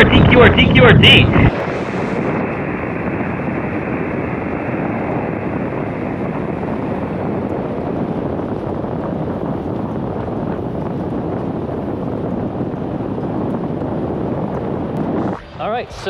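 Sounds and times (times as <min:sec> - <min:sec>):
radio receiver hiss: 0:00.0 - 0:03.4, 0:15.0 - 0:16.0.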